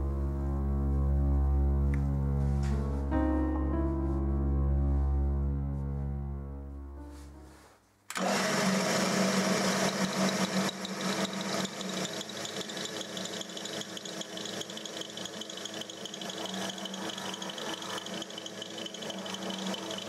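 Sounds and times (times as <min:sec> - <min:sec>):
drill press motor humming: 0:08.1 - 0:20.0
drill bit boring into tooth: 0:09.4 - 0:20.0.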